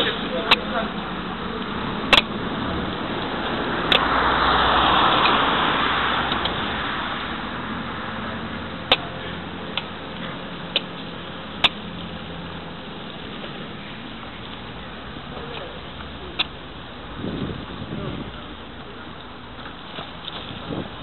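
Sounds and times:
car passing: 0.0 - 21.0
sharp clicks and knocks: 2.0 - 4.2, 6.2 - 6.7, 9.7 - 12.0.

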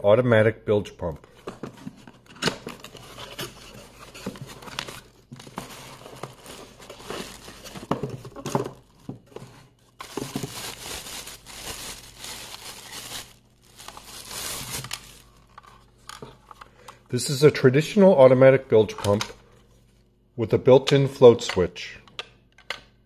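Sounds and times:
cardboard box rustling and knocking: 4.0 - 10.8
plastic bag crinkling: 4.8 - 9.1, 10.0 - 15.9.

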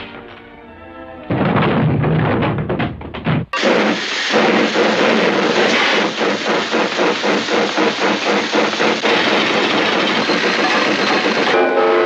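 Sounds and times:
hand-cranked machine chugging: 3.6 - 11.6.

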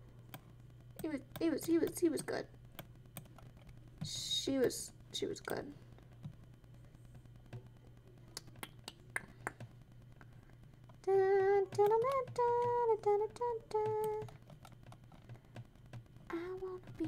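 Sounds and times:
woman humming a tune: 11.0 - 14.3.

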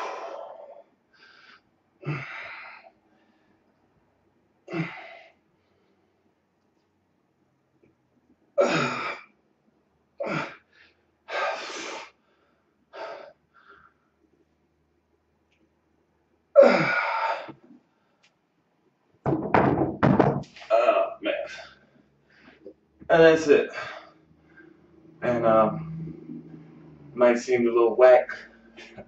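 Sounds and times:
man's strained exhalations: 0.0 - 2.9, 4.7 - 5.4, 10.2 - 10.7
dumbbells knocking on wooden floor: 19.2 - 20.6.

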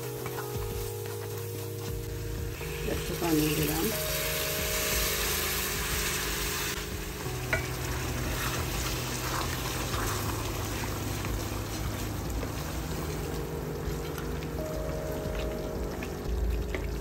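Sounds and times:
curry sizzling and bubbling: 0.0 - 17.0
water pouring into pot: 6.8 - 17.0.

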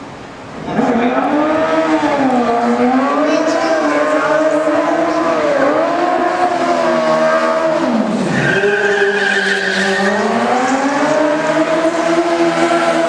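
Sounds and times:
car engine revving: 0.6 - 13.0
tyre squeal: 8.2 - 10.4.

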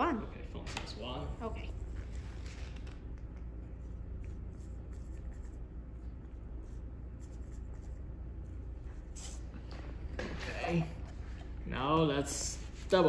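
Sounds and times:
steady low hum: 0.0 - 13.0
marker scratching on whiteboard: 4.2 - 8.2.

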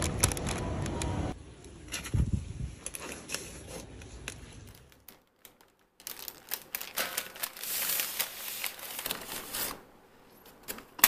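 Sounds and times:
paper bag crinkling: 2.9 - 9.9.

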